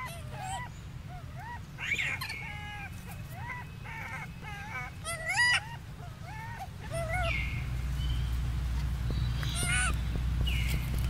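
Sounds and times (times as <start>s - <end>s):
baby monkey whimpering cries: 0.0s - 7.5s, 9.4s - 10.0s
harsh monkey cry: 0.0s - 7.8s, 9.4s - 10.0s.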